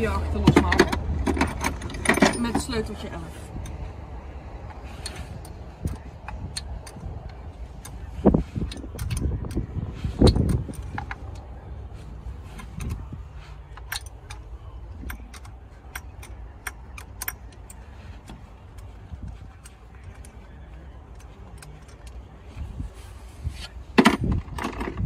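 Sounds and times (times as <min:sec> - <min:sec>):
metal spanner clinking on bolts: 0:00.4 - 0:03.8, 0:04.6 - 0:22.4, 0:24.0 - 0:25.0.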